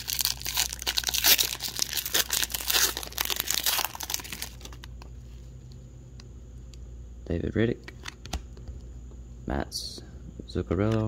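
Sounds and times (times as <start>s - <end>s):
foil wrapper tearing and crinkling: 0.0s - 4.9s.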